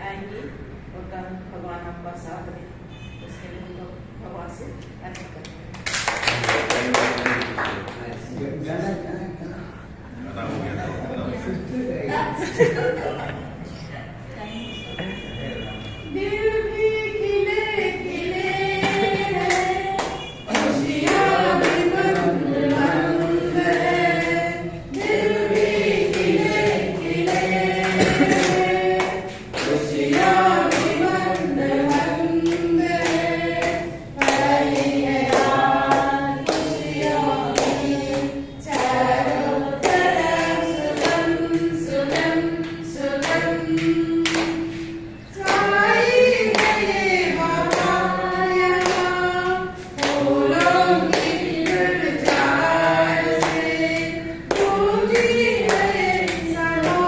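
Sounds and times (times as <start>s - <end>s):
handclaps: 5.0s - 8.4s, 18.8s - 22.9s, 24.9s - 46.8s, 47.6s - 49.2s, 50.0s - 57.0s
group singing in chorus: 16.1s - 57.0s.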